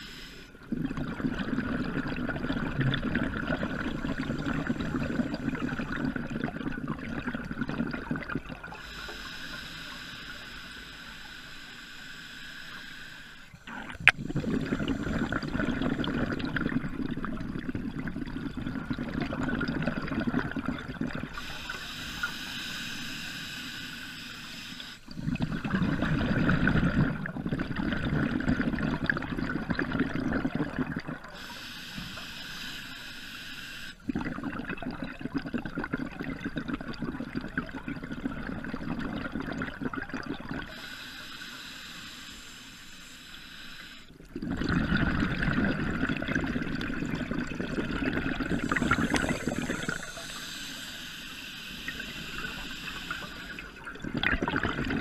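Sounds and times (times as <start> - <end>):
regulator inhale hiss: 0.0 - 0.6, 3.8 - 5.9, 8.7 - 16.1, 21.3 - 25.4, 31.3 - 34.2, 40.6 - 44.2, 48.3 - 53.8
exhaled bubbles burbling: 0.6 - 8.9, 13.6 - 21.8, 25.1 - 31.4, 34.0 - 40.8, 44.2 - 50.7, 51.9 - 55.0.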